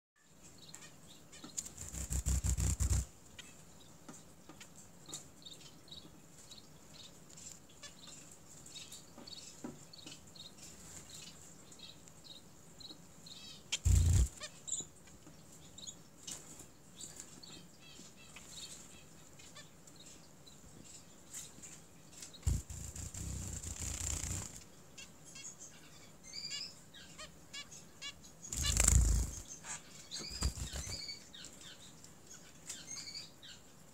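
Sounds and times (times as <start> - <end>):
finches chirping: 1.4 - 3.6, 13.3 - 14.9, 22.4 - 24.6, 25.4 - 31.8
rustling: 1.6 - 3.1, 22.4 - 24.6, 28.5 - 29.5, 30.2 - 31.1.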